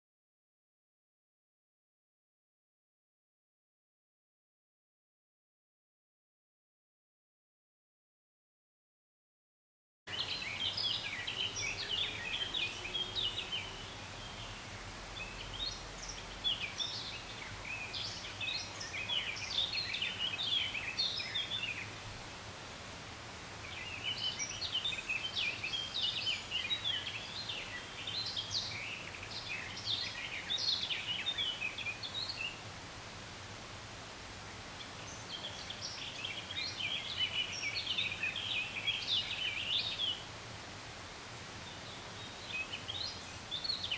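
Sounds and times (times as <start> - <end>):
songbird singing rapid notes: 10.1 - 22.0, 23.6 - 32.7, 34.4 - 40.3
faint outdoor hiss: 10.1 - 43.9.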